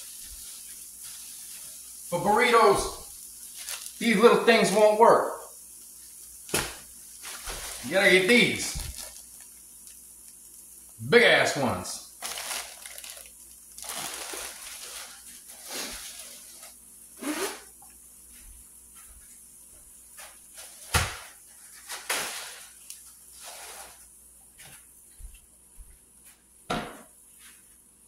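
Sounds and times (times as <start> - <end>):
plastic bag crinkling: 2.2 - 5.1, 6.4 - 10.5, 12.0 - 16.8.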